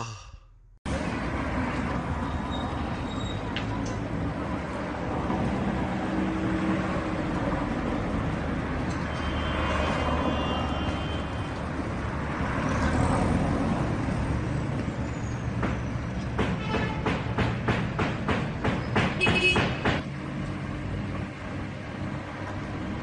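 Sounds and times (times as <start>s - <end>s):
diesel traffic rumble: 0.0s - 23.0s
brake squeal: 2.2s - 3.7s, 8.9s - 11.6s, 14.6s - 16.8s.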